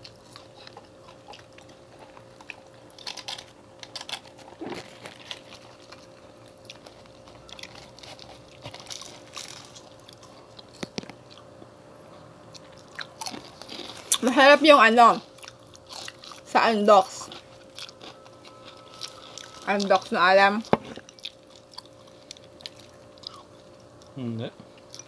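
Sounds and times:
wet chewing and smacking: 0.0 - 11.7, 12.5 - 14.2, 15.2 - 16.5, 17.1 - 20.1, 20.7 - 25.0
faint steady hum: 0.0 - 25.0
crunchy bites: 1.2 - 11.4.

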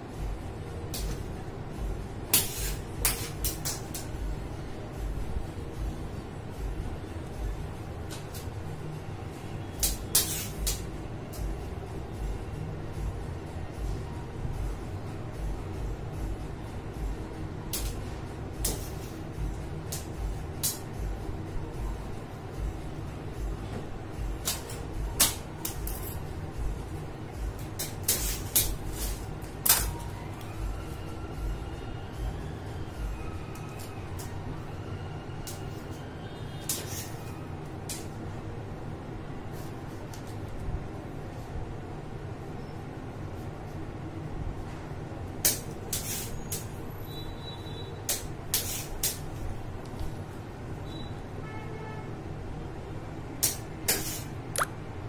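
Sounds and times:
low background hum: 0.0 - 55.0.

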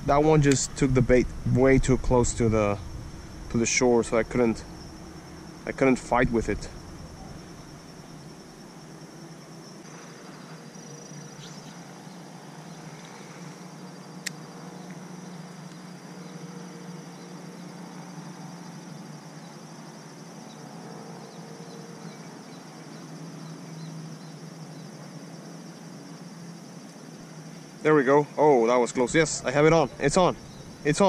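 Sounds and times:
low steady hum: 0.0 - 19.8, 27.5 - 31.0
insects chirring: 0.0 - 31.0
sharp click: 0.4 - 0.7.

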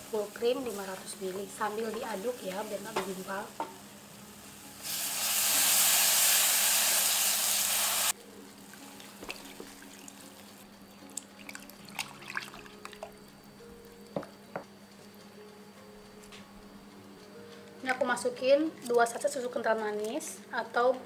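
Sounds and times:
milk hissing in hot pan: 0.0 - 10.6.

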